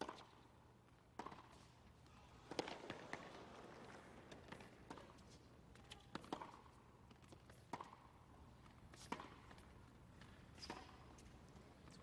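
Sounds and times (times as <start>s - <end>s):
tennis ball hit by rackets: 1.1s - 1.7s, 2.4s - 3.4s, 5.8s - 8.2s, 9.0s - 11.0s.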